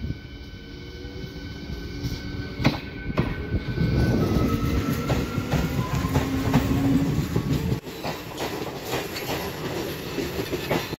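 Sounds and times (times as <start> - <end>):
train rumble: 0.0 - 11.0
train wheels clicking over rail joints: 4.8 - 11.0.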